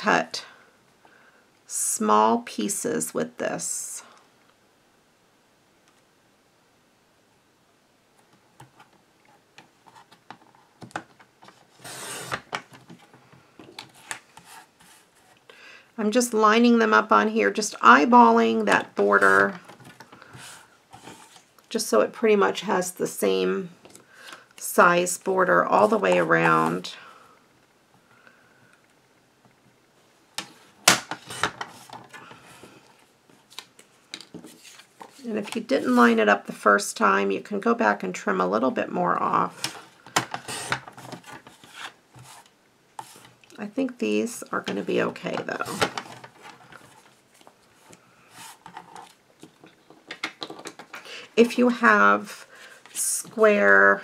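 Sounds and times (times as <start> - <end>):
paper trimmer blade scraping: 11.8 - 12.4.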